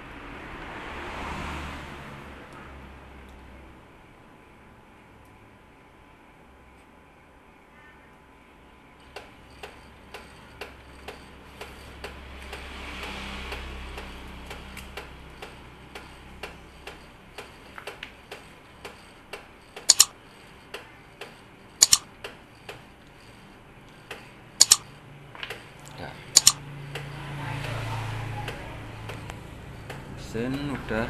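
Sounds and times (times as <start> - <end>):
steady ticking: 9.0 - 25.6, 26.3 - 27.2
loud double clicks: 19.8 - 20.2, 21.8 - 22.1, 24.6 - 24.9, 26.4 - 26.6.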